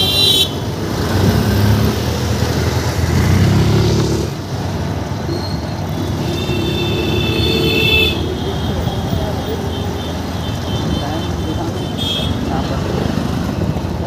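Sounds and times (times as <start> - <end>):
vehicle horn: 0.0 - 0.6, 5.9 - 12.4
vehicle engine rumble: 0.0 - 14.0.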